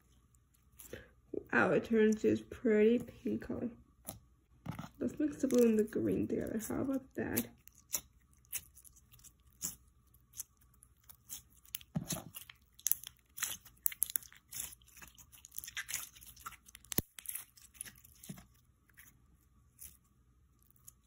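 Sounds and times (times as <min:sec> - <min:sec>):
sticky clicks and crackles: 0:06.5 - 0:18.6
slime squished by fingers: 0:07.4 - 0:19.1.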